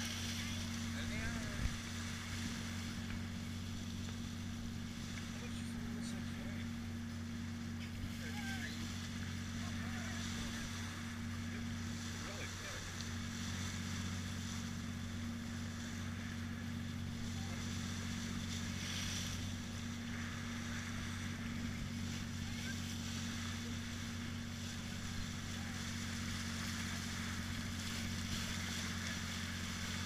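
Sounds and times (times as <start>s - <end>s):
boat engine droning: 0.0s - 30.0s
water rushing along hull: 0.0s - 30.0s.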